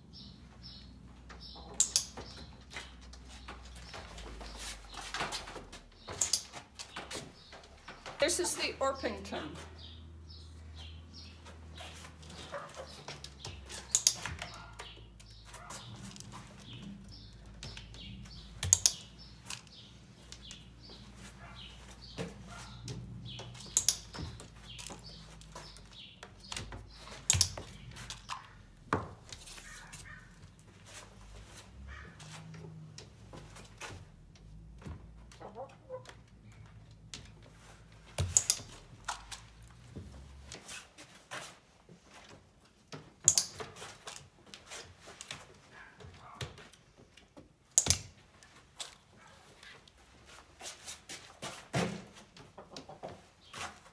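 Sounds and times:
hen clucking and chirping: 35.4s - 36.2s.

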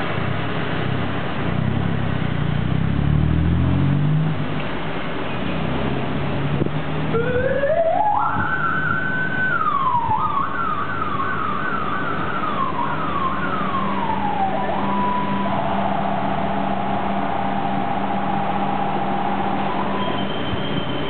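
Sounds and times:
electronic siren: 7.1s - 21.0s.

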